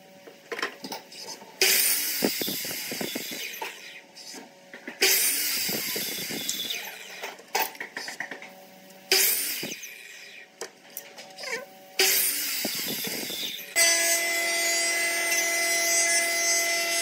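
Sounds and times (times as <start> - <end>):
miter saw cutting wood: 1.6 - 4.3, 5.0 - 7.3, 9.1 - 10.5, 11.4 - 17.0.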